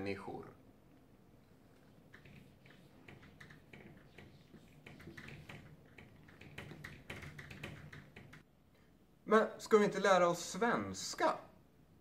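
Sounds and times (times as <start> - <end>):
marker squeaking on whiteboard: 1.7 - 8.4.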